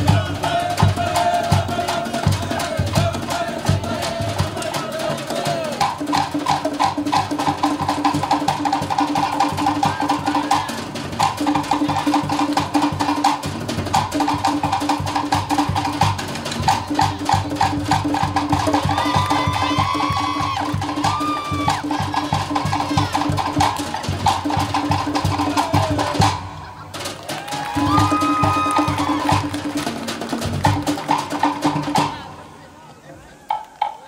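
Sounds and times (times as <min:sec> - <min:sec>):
deep bass drum beats: 0:00.0 - 0:26.6.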